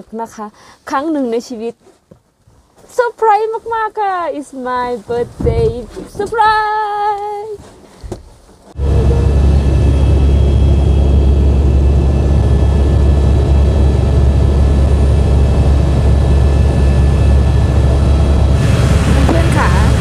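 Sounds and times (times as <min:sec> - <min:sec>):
helicopter drone inside cabin: 0:08.8 - 0:20.0.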